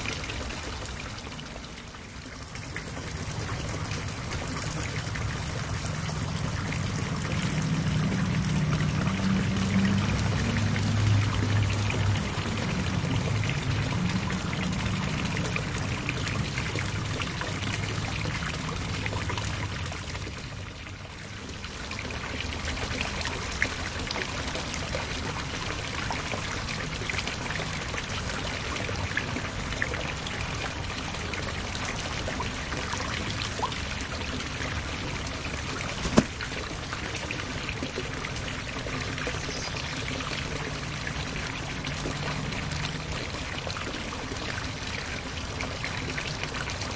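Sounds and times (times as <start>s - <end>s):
water trickling into pond: 0.0s - 46.9s.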